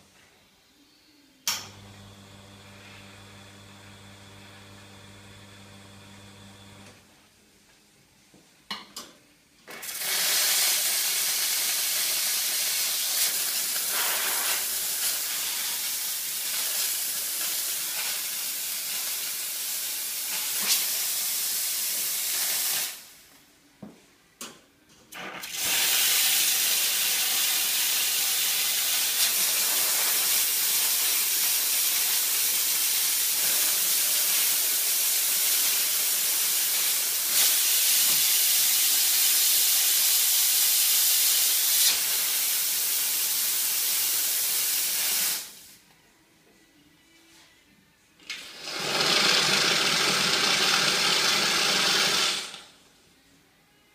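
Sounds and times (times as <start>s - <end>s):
espresso steam wand hissing: 9.8s - 23.1s, 25.5s - 45.6s, 48.5s - 52.6s.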